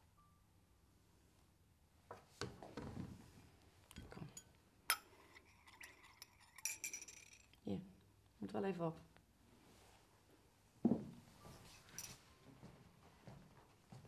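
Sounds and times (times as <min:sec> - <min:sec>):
teaspoon clinking in china cup: 0:03.9 - 0:07.6.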